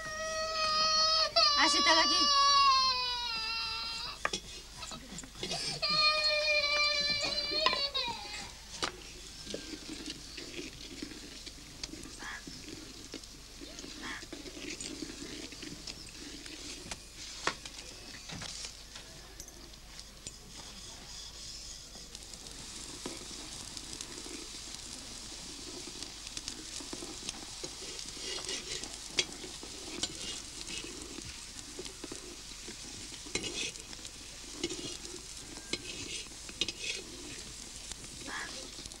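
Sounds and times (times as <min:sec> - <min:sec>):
flatbreads sizzling on griddle: 0:00.0 - 0:39.0
metal spatula scraping griddle: 0:25.2 - 0:39.0.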